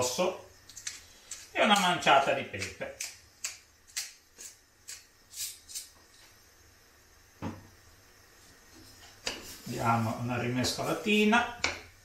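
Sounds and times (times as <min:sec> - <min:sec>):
pepper mill grinding: 0:00.7 - 0:06.0
thump: 0:07.4 - 0:07.7.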